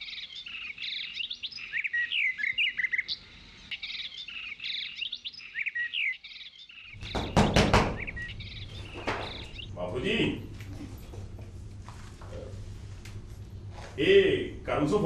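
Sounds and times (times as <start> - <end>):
small birds chirping: 0.0 - 11.4.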